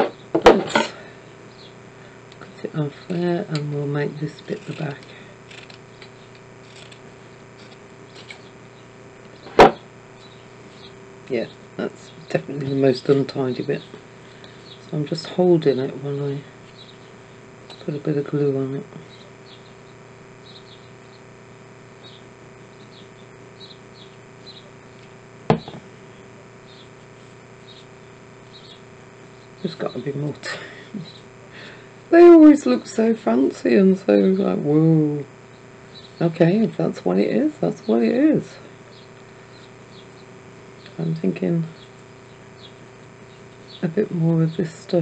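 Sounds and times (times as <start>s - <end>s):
steady hum: 0.0s - 45.0s
sharp knock: 9.5s - 9.8s, 25.5s - 25.8s.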